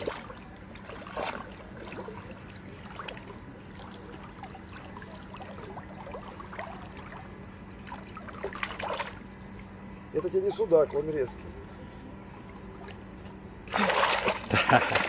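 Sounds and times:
small splashes: 0.0s - 11.6s, 12.7s - 15.0s
river water sloshing: 0.0s - 15.0s.

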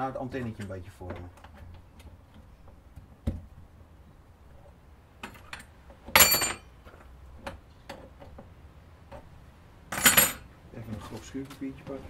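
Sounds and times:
metal tools clinking: 6.2s - 6.7s, 9.9s - 10.5s.

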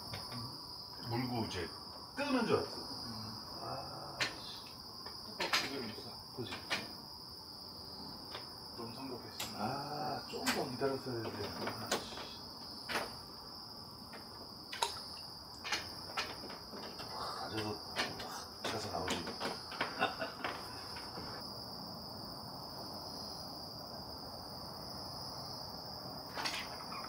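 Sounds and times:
insects trilling: 0.0s - 27.0s
clicks and knocks: 5.0s - 6.9s, 12.9s - 13.2s, 15.6s - 21.4s, 26.3s - 26.9s.

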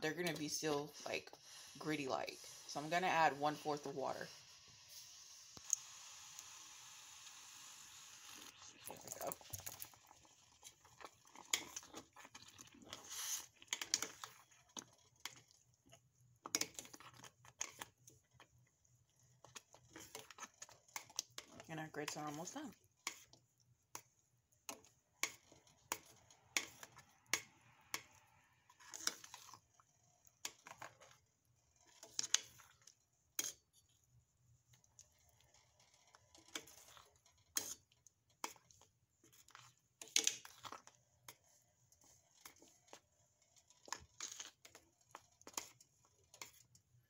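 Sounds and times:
metal spoon scraping a saucepan: 10.5s - 15.6s, 19.2s - 23.5s, 24.7s - 33.7s, 35.0s - 46.8s.

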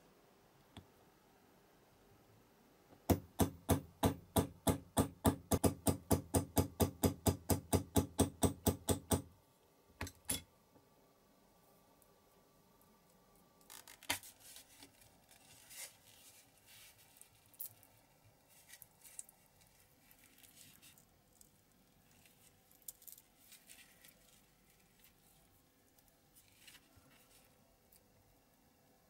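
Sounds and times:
material crackling and rustling: 13.5s - 28.0s.

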